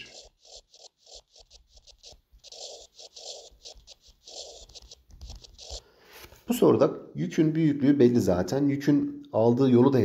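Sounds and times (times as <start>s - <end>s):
stylus scratching on screen: 0.0s - 6.6s.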